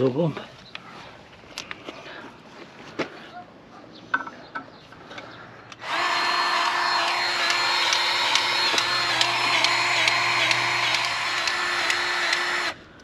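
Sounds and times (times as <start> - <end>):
power tool motor whining: 5.8 - 12.8.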